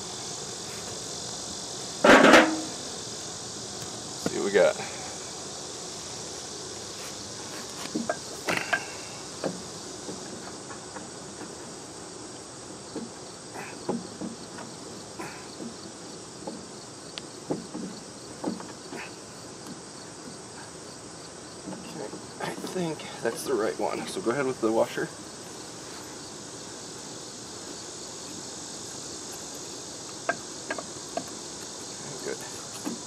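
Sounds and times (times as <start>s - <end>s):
high drone of insects: 0.0s - 33.0s
metal clunks and knocks: 2.0s - 2.8s, 7.9s - 11.6s, 13.8s - 14.7s, 16.4s - 16.7s, 17.4s - 20.4s, 21.6s - 22.8s, 30.3s - 31.4s.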